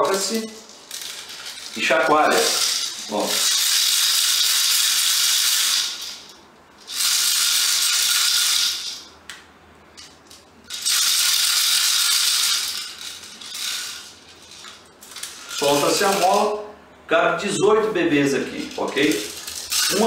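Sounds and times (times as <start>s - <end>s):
plastic bbs rattling in magazine: 18.5s - 20.0s.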